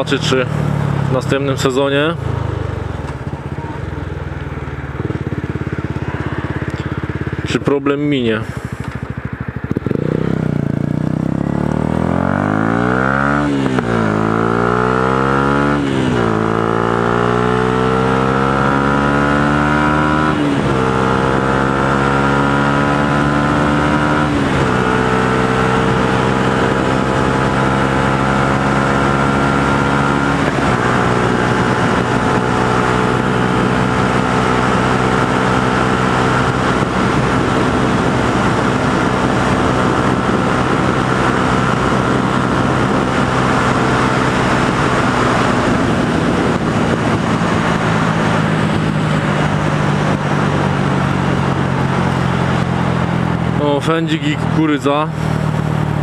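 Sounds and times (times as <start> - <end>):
motorcycle engine accelerating: 0.0 - 56.0
wind rush: 29.9 - 53.6.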